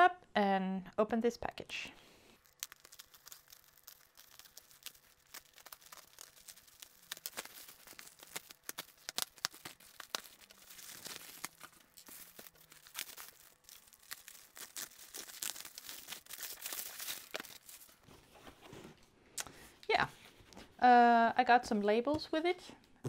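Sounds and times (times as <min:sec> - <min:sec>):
plastic bag tearing: 0:02.4 - 0:18.0
bubble wrap crinkling: 0:02.4 - 0:18.1.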